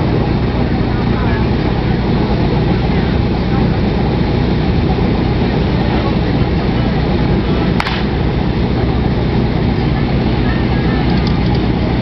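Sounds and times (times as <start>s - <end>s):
fire pump engine running: 0.0s - 12.0s
sharp crack: 7.7s - 8.3s.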